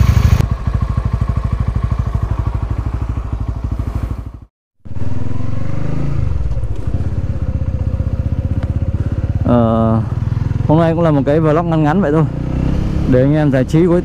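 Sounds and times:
engine ticking: 0.0s - 4.4s, 6.3s - 12.3s
motorcycle engine idling: 0.0s - 14.0s
motorcycle pulling away: 0.0s - 14.0s.

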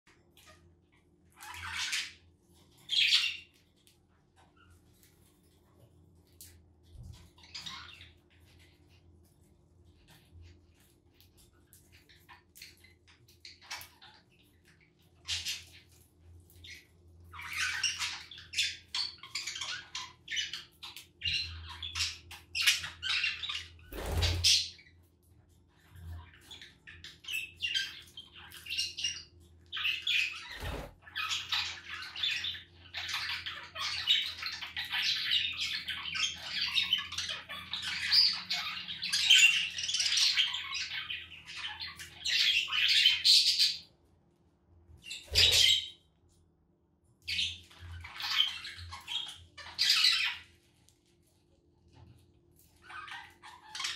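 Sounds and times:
budgerigars chattering and warbling: 1.3s - 3.6s, 7.3s - 8.8s, 11.9s - 24.9s, 25.8s - 43.9s, 45.0s - 46.0s, 47.3s - 50.6s, 52.6s - 53.9s.

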